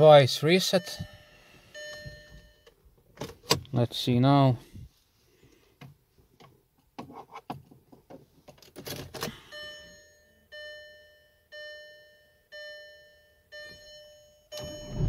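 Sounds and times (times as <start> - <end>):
dashboard warning chime: 0.0 - 2.8, 9.4 - 15.0.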